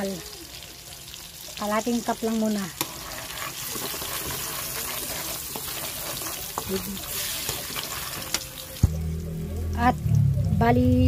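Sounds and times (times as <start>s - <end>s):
food sizzling in hot oil: 0.0s - 10.9s
metal spatula scraping a pan: 2.2s - 8.7s.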